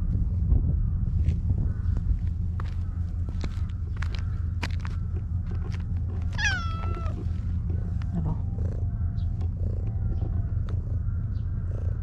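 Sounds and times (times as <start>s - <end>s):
cat purring: 5.7s - 12.0s.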